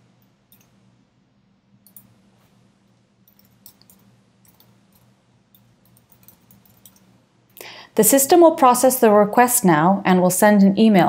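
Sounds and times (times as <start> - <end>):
low electrical hum: 0.0 - 11.0
typing on computer keyboard: 3.3 - 7.1.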